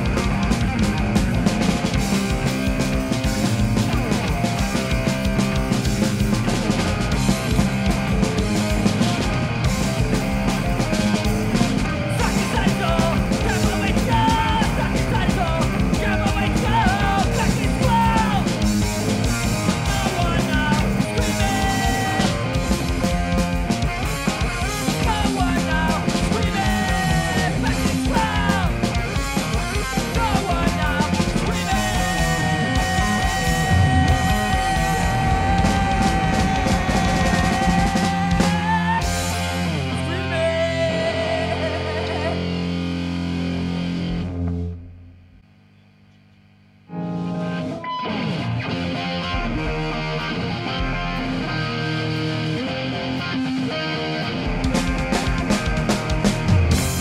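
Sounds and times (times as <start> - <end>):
rock band playing live: 0.0 - 44.8, 46.9 - 57.0
bass guitar: 0.0 - 45.8, 46.8 - 57.0
distorted electric guitars: 0.0 - 57.0
person singing: 12.0 - 18.6, 19.4 - 23.1, 24.6 - 42.8.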